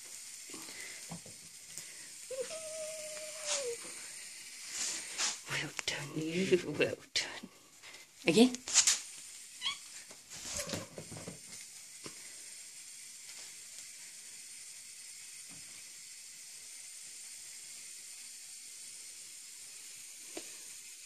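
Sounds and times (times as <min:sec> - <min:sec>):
steady high hiss: 0:00.0 - 0:21.0
brief rustles: 0:08.6 - 0:09.1.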